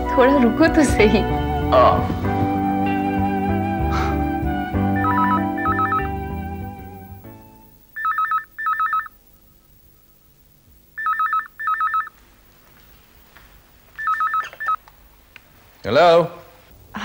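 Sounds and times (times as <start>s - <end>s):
telephone ringing with warbling trill: 5.0s - 6.6s, 8.0s - 9.2s, 11.0s - 12.1s.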